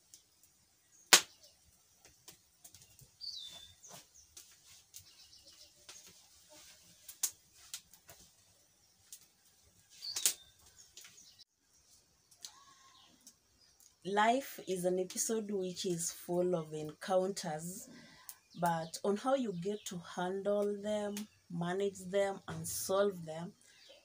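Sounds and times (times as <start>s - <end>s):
wood fire crackling and popping: 0.0s - 11.4s
faint bird chirps: 2.7s - 4.4s, 9.9s - 11.5s, 12.2s - 13.9s.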